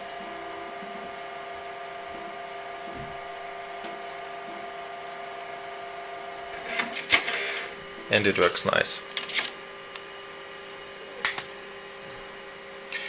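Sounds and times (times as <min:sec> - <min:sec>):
computer steady whine: 0:00.0 - 0:13.0
diskette drive ejecting clatter: 0:06.5 - 0:07.7.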